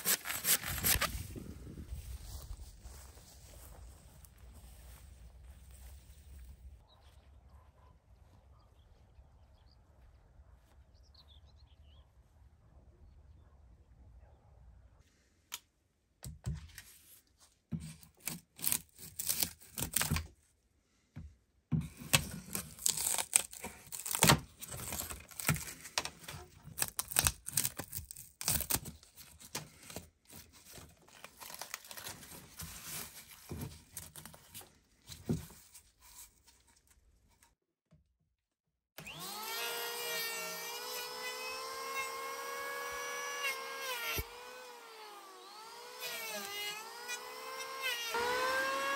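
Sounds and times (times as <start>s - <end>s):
bark cracking and tearing: 0.0s - 1.2s, 18.0s - 20.3s, 22.1s - 30.0s, 30.7s - 33.0s
electric hand planer whining: 39.0s - 48.9s.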